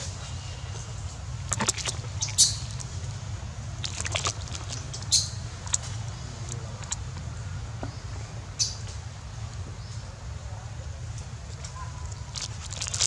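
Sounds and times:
low steady rumble: 0:00.0 - 0:13.0
monkey squeaks and clicks: 0:04.6 - 0:05.9.

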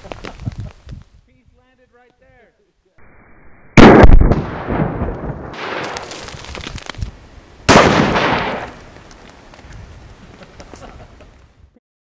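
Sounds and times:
scattered crackles: 0:00.0 - 0:01.1, 0:03.8 - 0:11.5
explosion blasts: 0:03.0 - 0:06.5, 0:07.7 - 0:08.8.

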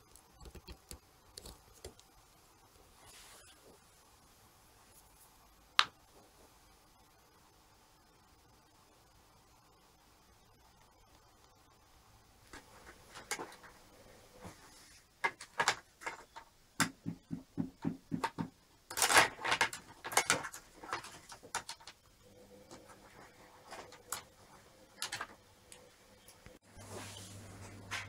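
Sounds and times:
computer parts clicking and rattling: 0:18.2 - 0:22.1, 0:22.7 - 0:26.4.

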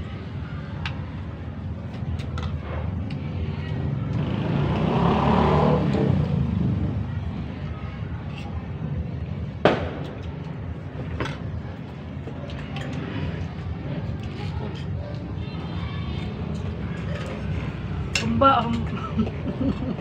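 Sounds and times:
vehicle passing by: 0:04.0 - 0:07.2.

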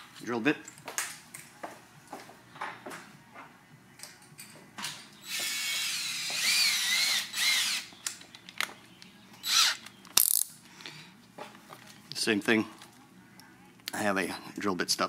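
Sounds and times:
cordless drill motor whining: 0:05.2 - 0:07.9, 0:09.4 - 0:09.8.

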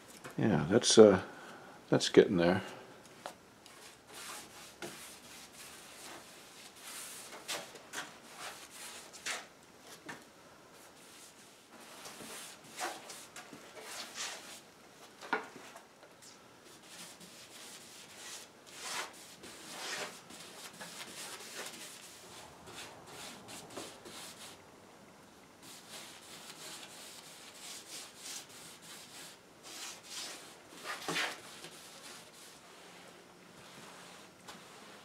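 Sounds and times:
paintbrush swishing on wood: 0:25.6 - 0:33.0, 0:33.6 - 0:35.0.

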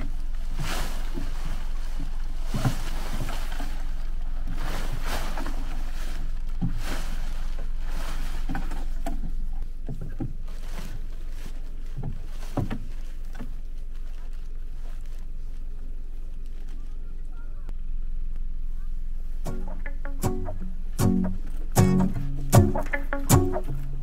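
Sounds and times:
footsteps on wooden deck: 0:06.6 - 0:13.7.

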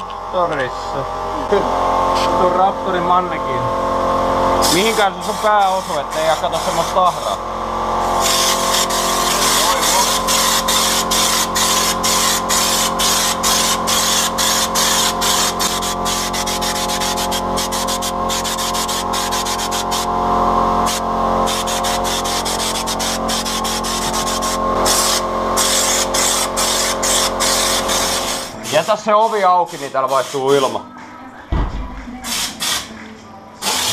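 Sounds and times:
steady hum: 0:00.0 - 0:33.9
spray gun hissing: 0:04.6 - 0:07.4, 0:08.0 - 0:20.1, 0:20.8 - 0:30.7, 0:32.2 - 0:32.9, 0:33.6 - 0:33.9.

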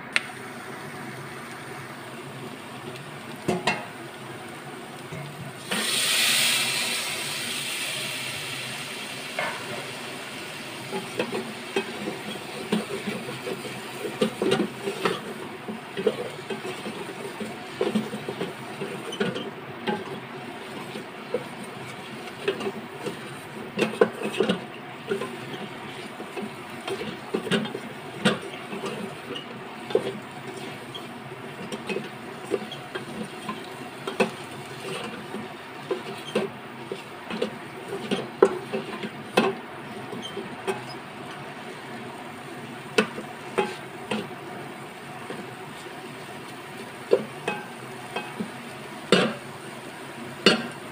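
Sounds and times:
food frying in a pot: 0:00.0 - 0:50.9
spatula scraping a pot: 0:10.9 - 0:41.1, 0:43.0 - 0:44.3.

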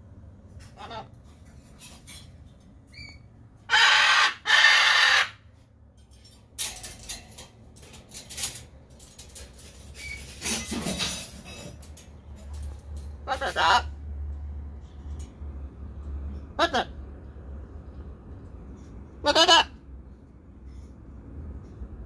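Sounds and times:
parrot screeching: 0:02.9 - 0:05.5, 0:13.2 - 0:14.0, 0:19.2 - 0:19.8.

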